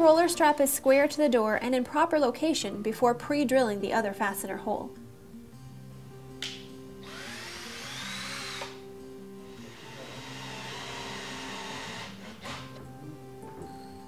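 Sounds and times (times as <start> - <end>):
background music: 0.0 - 14.0
cordless drill whining: 7.0 - 8.8, 9.5 - 12.8.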